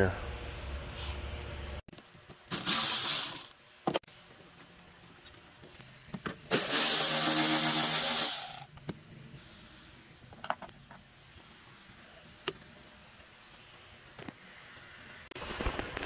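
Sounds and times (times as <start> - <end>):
small power tool running: 2.5 - 3.5, 6.5 - 8.6.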